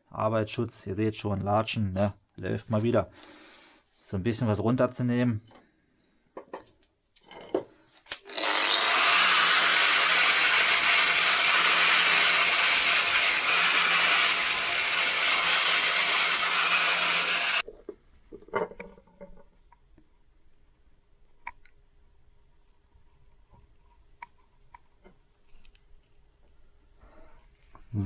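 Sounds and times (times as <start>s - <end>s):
power tool grinding metal: 8.1s - 17.6s.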